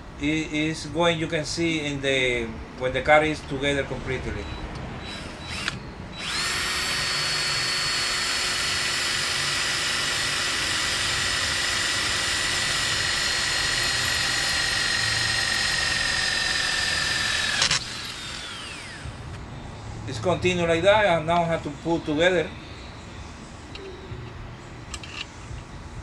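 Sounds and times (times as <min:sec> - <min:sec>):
cordless drill whining: 0:05.0 - 0:19.2.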